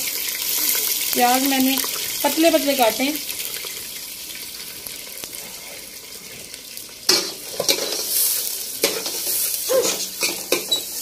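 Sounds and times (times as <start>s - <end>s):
onions sizzling in oil: 0.0s - 11.0s
spoon scraping a pot: 8.8s - 11.0s.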